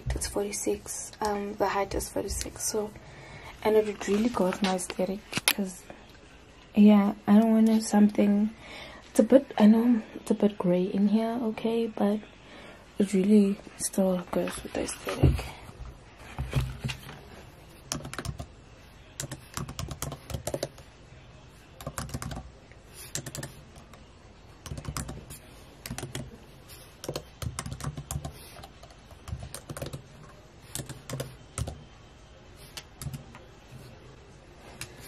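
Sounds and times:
laptop keyboard typing: 17.8 - 18.5, 19.2 - 20.9, 21.8 - 24.0, 24.6 - 31.9, 32.6 - 33.5.

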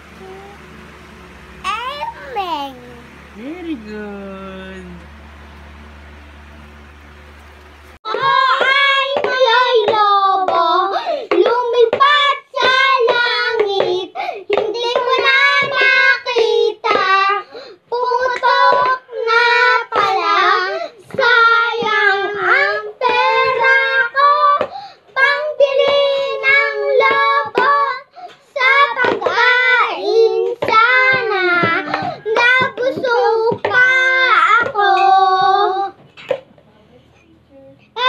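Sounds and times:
boys singing together: 8.1 - 36.0.

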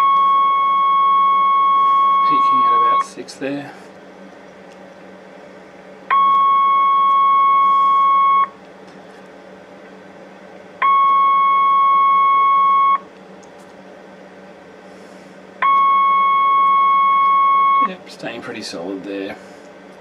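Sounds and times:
radio test tone: 0.0 - 3.2, 6.1 - 8.5, 15.6 - 18.0.

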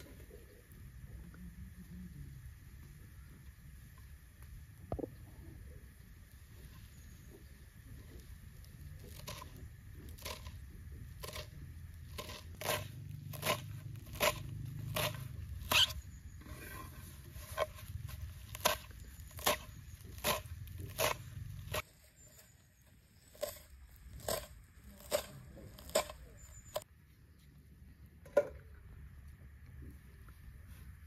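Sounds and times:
knife chopping herbs in bowl: 9.0 - 16.0, 16.8 - 22.4, 23.2 - 26.8.

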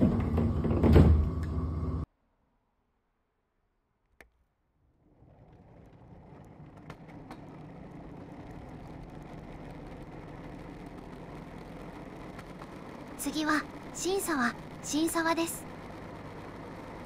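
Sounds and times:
vehicle rumbling rolling noise: 4.8 - 17.0.

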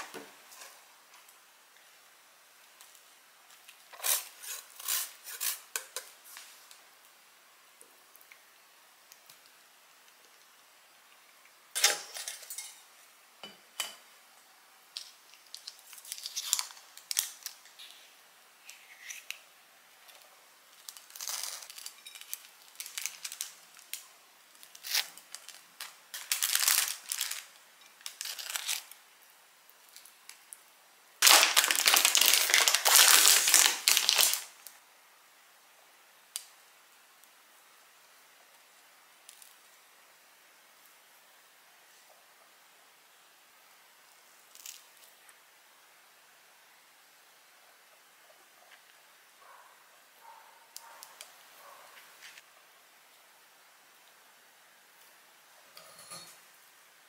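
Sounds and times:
crinkling scrape: 0.0 - 1.3, 3.6 - 6.8, 20.0 - 24.0, 24.6 - 29.0, 31.2 - 34.5, 50.8 - 52.4.

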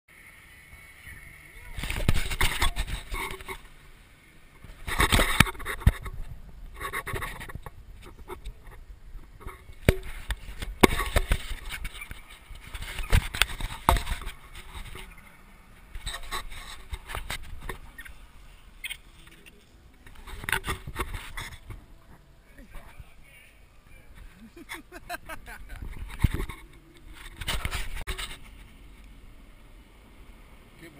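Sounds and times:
camera handling rubbing and scraping: 1.8 - 3.7, 4.6 - 23.0, 25.7 - 28.8.

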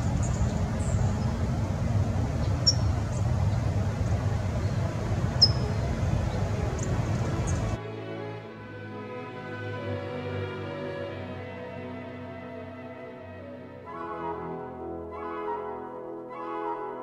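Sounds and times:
bird chirps: 0.0 - 1.4, 2.4 - 3.7, 4.6 - 7.7
distant traffic rumble: 0.0 - 7.8.

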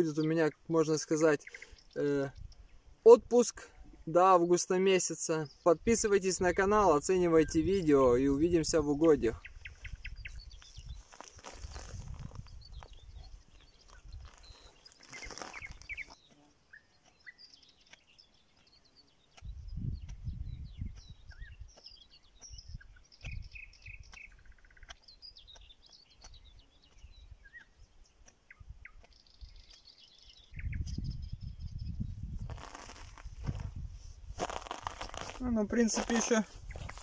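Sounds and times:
songbirds chirping: 0.0 - 37.0
feathers rustling being plucked: 10.6 - 12.6, 13.8 - 16.2, 32.4 - 37.0.

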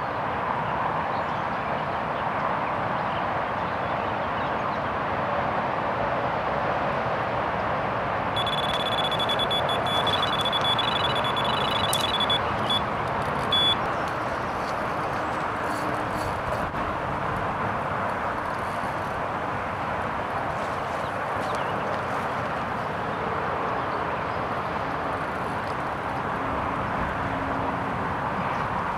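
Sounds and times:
rushing background noise: 0.0 - 28.9
electronic bite alarm beeping: 8.4 - 13.8.

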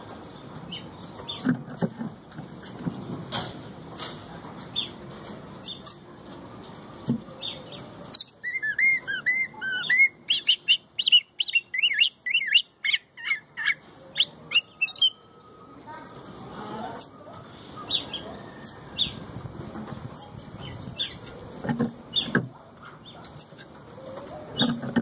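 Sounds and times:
bird whistled song: 7.0 - 15.7, 17.8 - 19.2.

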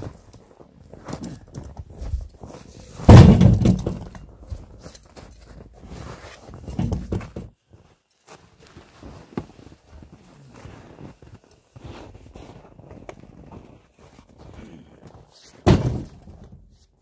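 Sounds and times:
logs thudding onto sled: 2.9 - 4.8, 5.4 - 7.5, 15.6 - 16.7
footsteps in snow: 7.7 - 15.6.

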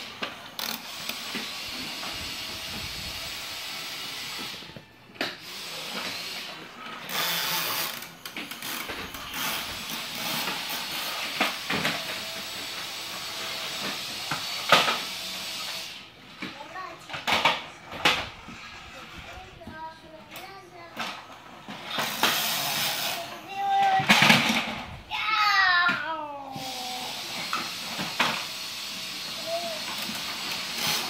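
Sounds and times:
toy trucks clattering on wooden floor: 20.4 - 24.8.

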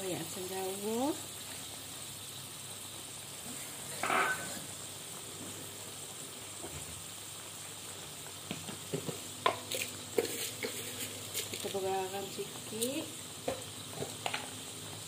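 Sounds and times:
paste sizzling in hot oil: 0.0 - 15.0
metal ladle scraping a wok: 3.9 - 4.7.

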